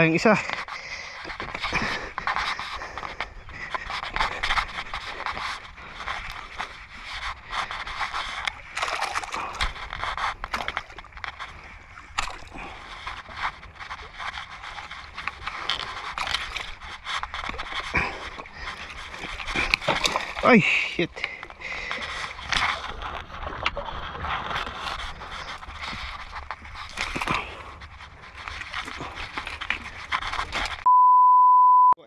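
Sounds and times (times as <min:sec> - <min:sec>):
scrapes: 0:00.4 - 0:30.9
person breathing hard: 0:00.7 - 0:06.6, 0:17.9 - 0:22.4.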